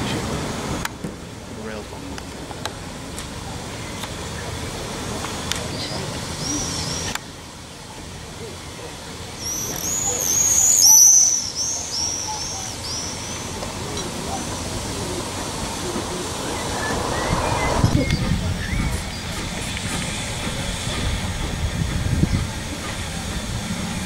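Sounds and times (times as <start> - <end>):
low steady rumble: 15.0 - 19.7.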